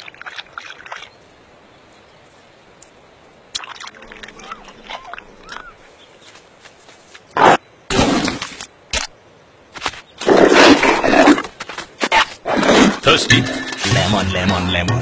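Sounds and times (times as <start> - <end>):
cheetah cubs chirping: 4.0 - 5.9.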